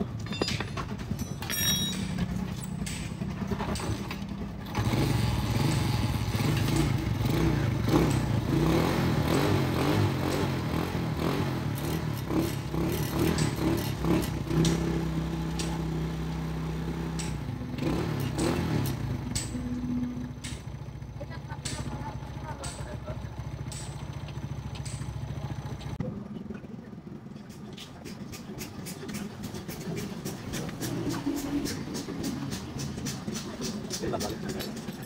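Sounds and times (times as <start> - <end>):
small engine running: 1.6 - 35.0.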